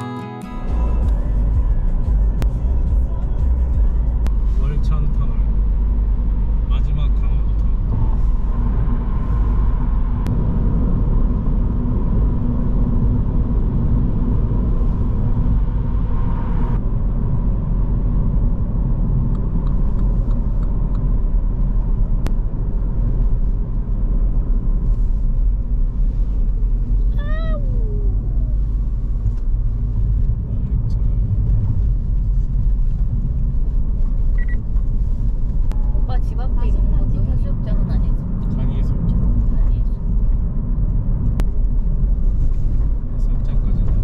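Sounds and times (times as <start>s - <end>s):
car engine and tyres rumbling: 0.0s - 44.0s
tunnel hiss and hum: 0.5s - 21.6s.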